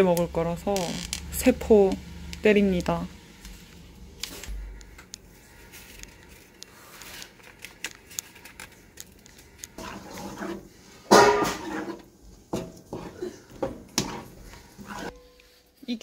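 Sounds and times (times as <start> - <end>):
powder packets rustling: 4.1 - 9.8.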